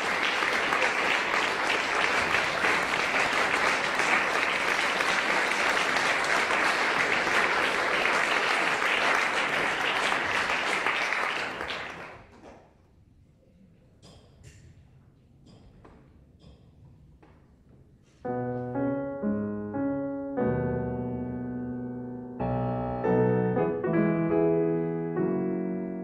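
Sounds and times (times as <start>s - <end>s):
audience applauding: 0.0s - 12.3s.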